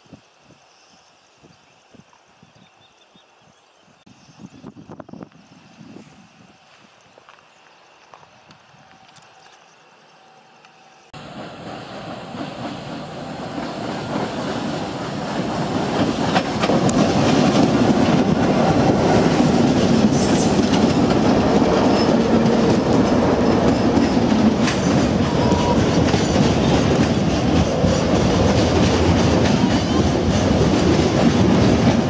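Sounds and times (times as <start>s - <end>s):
wagons rolling over rails: 12.4s - 32.0s.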